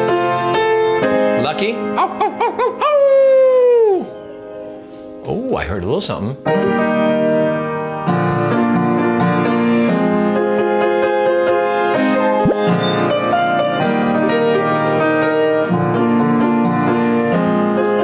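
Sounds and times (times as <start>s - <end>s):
grand piano chords: 0.0s - 2.2s, 6.4s - 18.0s.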